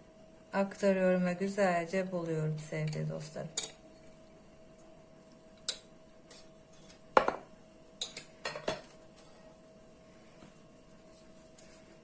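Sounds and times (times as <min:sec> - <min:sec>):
glass bowls knocking on table: 0:07.2 - 0:07.5.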